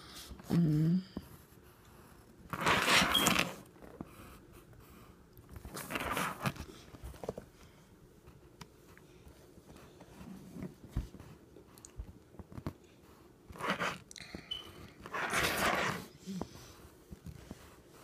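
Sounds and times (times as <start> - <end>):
pencil scribbling on paper: 14.7 - 18.0.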